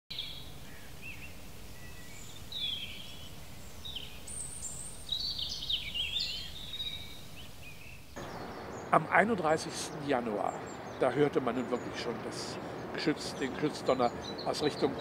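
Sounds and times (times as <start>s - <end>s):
small birds chirping: 0.1s - 15.0s
low outdoor rumble: 8.2s - 15.0s.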